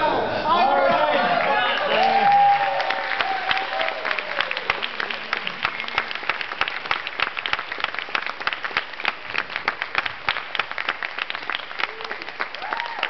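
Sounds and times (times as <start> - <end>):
audience applauding: 1.0 - 13.0.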